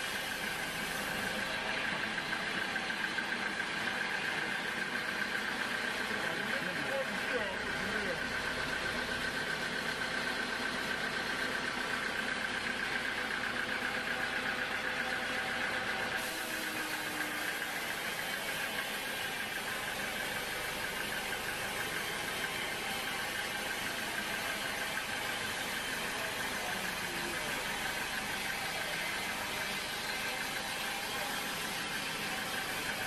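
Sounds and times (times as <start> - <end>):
band saw whine: 0.0 - 33.0
machine hum: 15.0 - 33.0.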